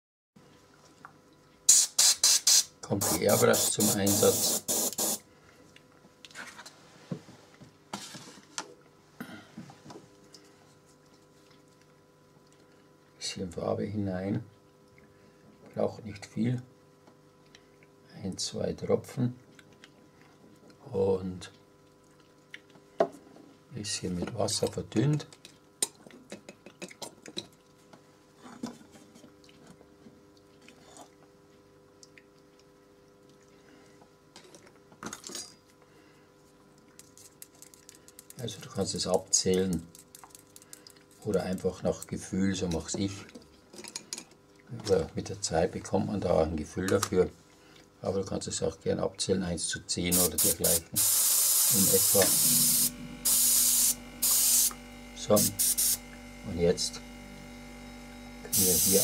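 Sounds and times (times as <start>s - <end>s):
brief air hisses: 1.7s - 5.2s, 50.2s - 54.8s, 55.4s - 56.0s, 58.5s - 59.0s
faint steady hum: 2.7s - 59.0s
small objects clicking and tapping: 37.0s - 38.4s, 39.6s - 41.0s.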